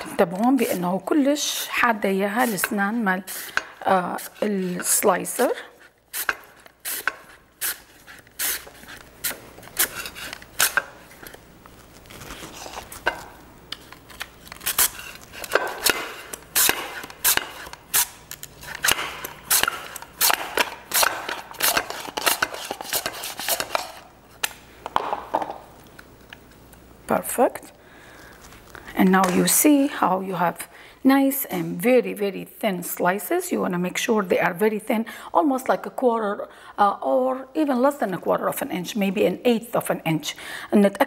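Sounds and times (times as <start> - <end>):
mandoline slicer cutting strokes: 2.3 - 11.0, 14.6 - 24.0.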